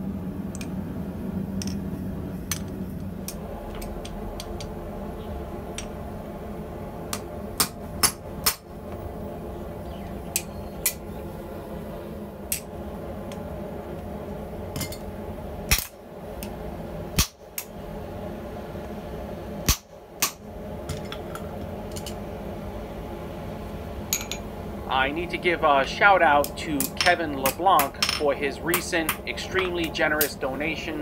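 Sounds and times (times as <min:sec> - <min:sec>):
steady low hum: 0:00.0 - 0:31.0
hammer striking steel on anvil: 0:26.4 - 0:30.3.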